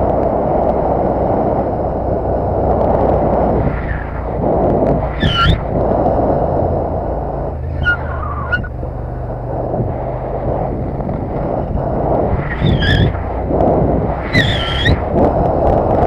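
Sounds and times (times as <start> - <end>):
motorcycle engine running: 0.0 - 16.0
wind and road noise: 0.0 - 16.0
high whistling tones: 5.2 - 5.6, 7.6 - 8.8, 12.3 - 13.2, 14.2 - 15.1.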